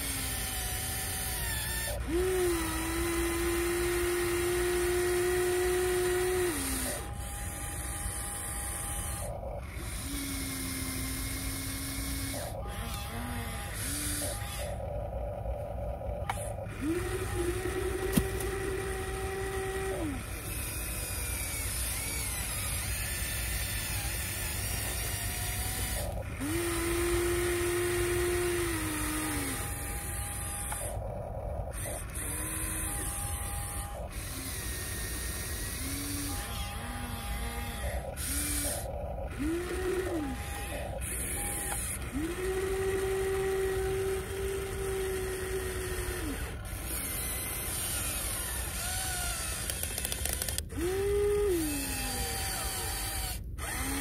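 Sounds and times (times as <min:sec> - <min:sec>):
electric motors whining: 0:00.0 - 0:54.0
sharp click: 0:49.5 - 0:50.8.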